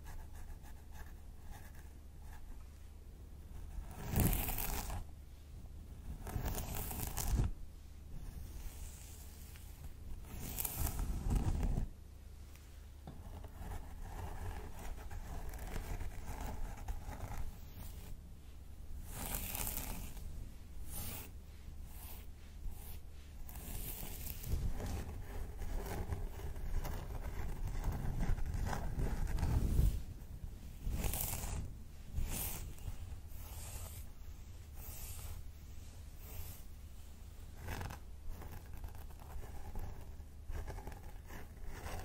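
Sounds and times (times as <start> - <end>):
fingers scratching hair: 3.8 - 5.1, 6.1 - 7.6, 8.3 - 11.9, 13.1 - 18.2, 19.0 - 35.4, 37.5 - 42.0.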